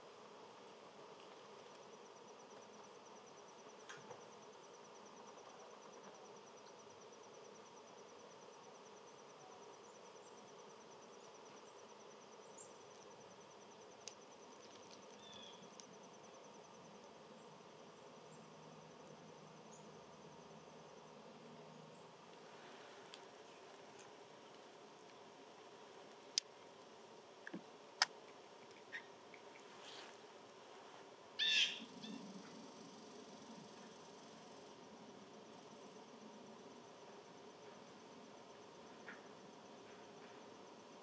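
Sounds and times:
high-pitched insect trill: 1.8 - 22.2, 31.4 - 39.8.

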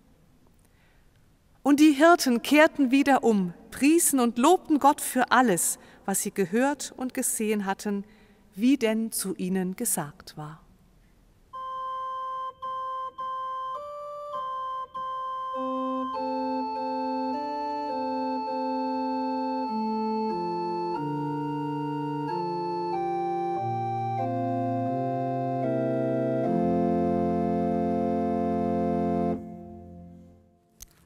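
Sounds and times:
organ playing chords: 11.5 - 30.6.

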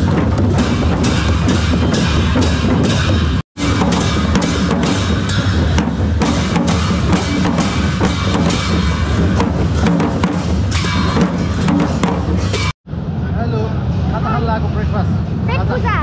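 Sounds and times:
drums beaten with sticks and hands: 0.0 - 12.8.

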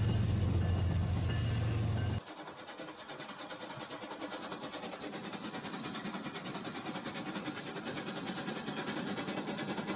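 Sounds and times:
toy train rattling on track: 2.2 - 9.9.

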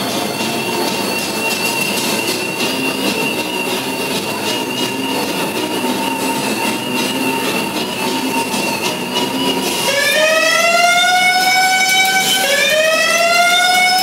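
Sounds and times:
alarm siren wailing: 0.0 - 14.0.

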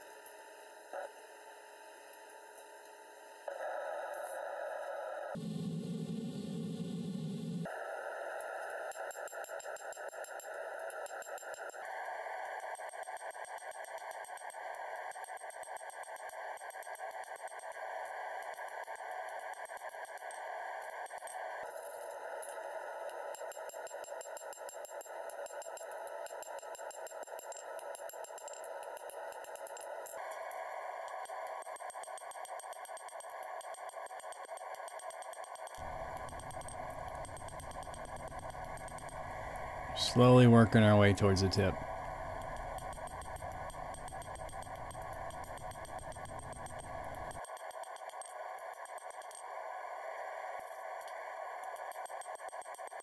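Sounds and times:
steady hiss: 35.8 - 47.4.

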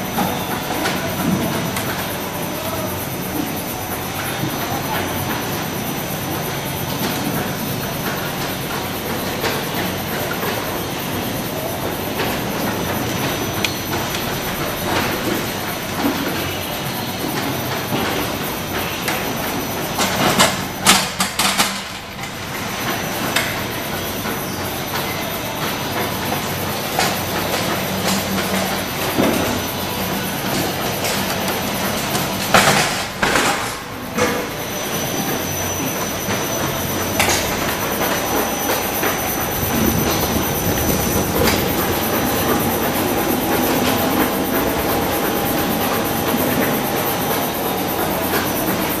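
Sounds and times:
machine rattling and rumbling: 35.8 - 49.0.

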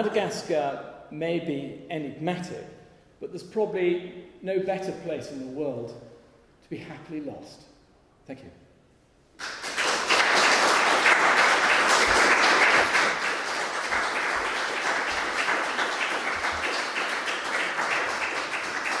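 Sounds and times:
audience applauding: 9.4 - 19.0.

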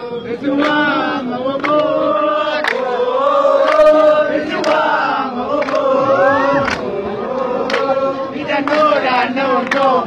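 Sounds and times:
crowd singing a chant: 0.0 - 10.0
sharp clap-like strikes: 6.6 - 6.9.

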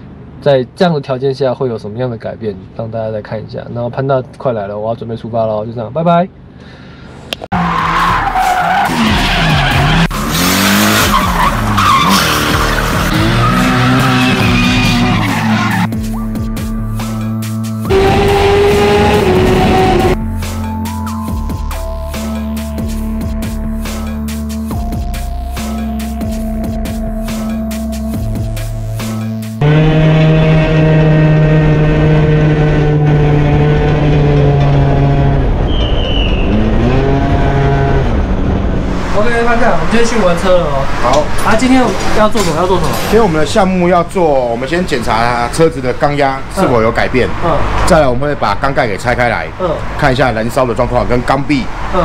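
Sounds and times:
tyres squealing: 7.6 - 15.9
engine revving: 8.8 - 16.0, 16.6 - 20.2, 25.6 - 39.9.

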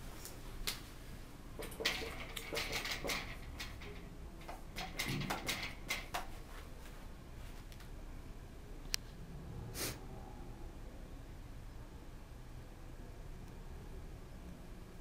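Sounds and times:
knocks and clicks of handling: 1.6 - 6.4.

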